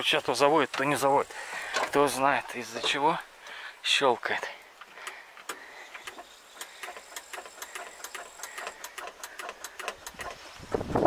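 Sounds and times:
starting circuit clicking rapidly: 0:06.0 - 0:10.5.

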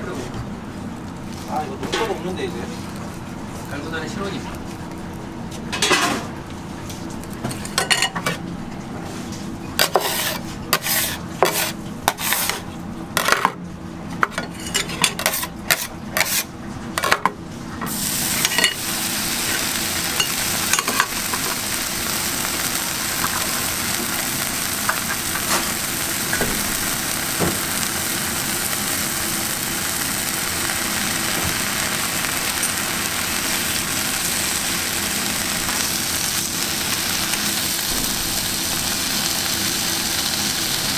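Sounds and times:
bacon sizzling: 0:01.0 - 0:05.7, 0:17.9 - 0:40.9
metal spatula scraping griddle: 0:09.8 - 0:12.6.

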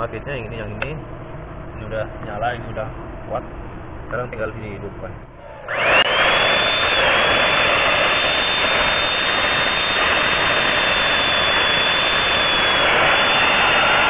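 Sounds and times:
drill motor whine: 0:05.5 - 0:14.0.

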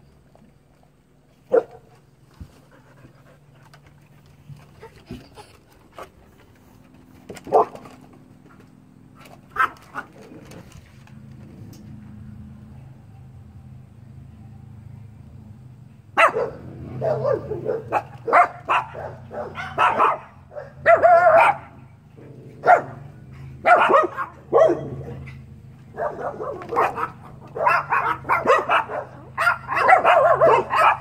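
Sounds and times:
dogs barking: 0:01.5 - 0:01.9, 0:07.4 - 0:07.9, 0:09.5 - 0:10.3, 0:16.2 - 0:31.0.

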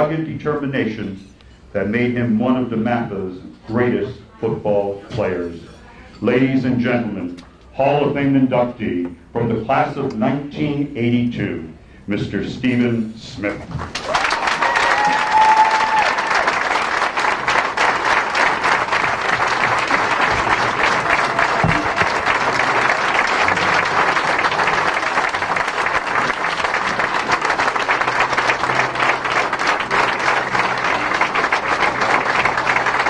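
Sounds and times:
audience applauding: 0:13.7 - 0:33.0.

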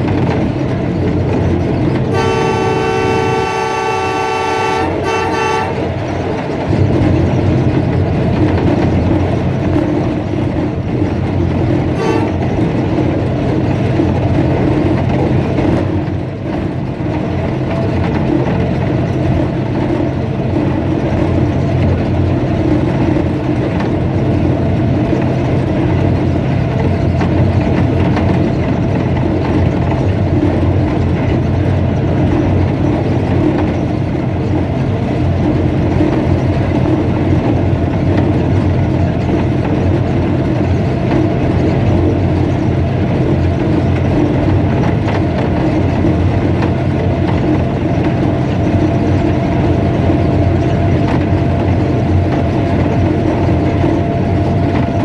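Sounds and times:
diesel engine running: 0:00.0 - 0:55.0
wheels on rails: 0:00.0 - 0:55.0
locomotive air horn blasts: 0:02.1 - 0:05.9, 0:12.0 - 0:12.4.

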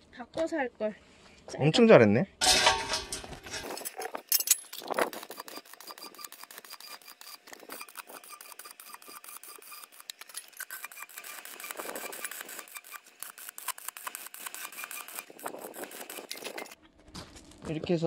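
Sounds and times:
metal clinks: 0:02.4 - 0:05.0
welding arc crackling: 0:03.1 - 0:16.8.

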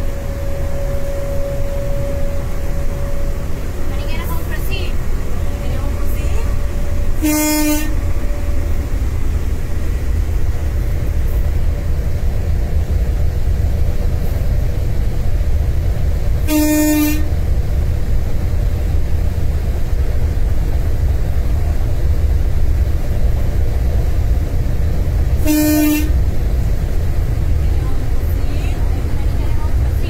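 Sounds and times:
locomotive horn blasts: 0:00.0 - 0:04.7, 0:05.4 - 0:08.9, 0:16.4 - 0:17.4, 0:25.4 - 0:26.2
locomotive cab rumble: 0:00.0 - 0:30.0.

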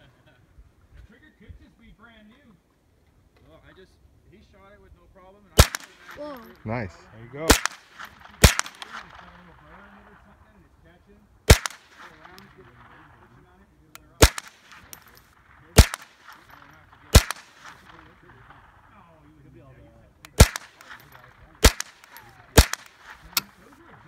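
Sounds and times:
gunshots: 0:05.6 - 0:10.4, 0:11.5 - 0:19.3, 0:20.2 - 0:24.0.

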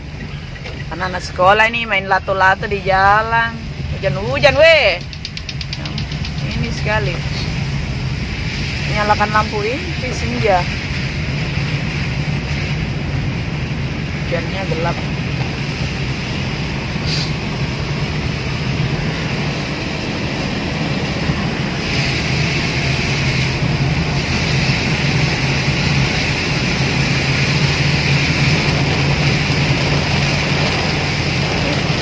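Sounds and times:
engine and tyre hum: 0:00.0 - 0:32.0
heavy rain on car roof: 0:00.0 - 0:32.0
sharp click: 0:05.0 - 0:06.5.

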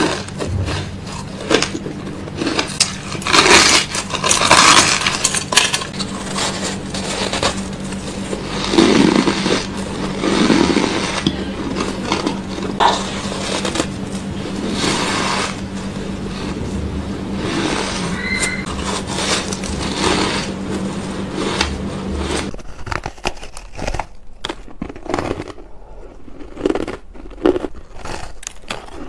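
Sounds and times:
ice being chewed: 0:00.0 - 0:16.8, 0:17.4 - 0:29.0
low hum: 0:00.0 - 0:22.7.

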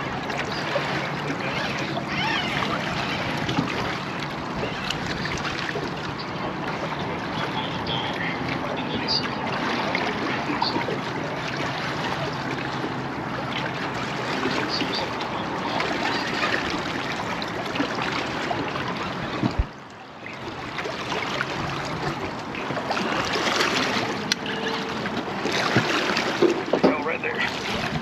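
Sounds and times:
wind on microphone: 0:00.0 - 0:19.8
water lapping against boat hull: 0:00.0 - 0:28.0.

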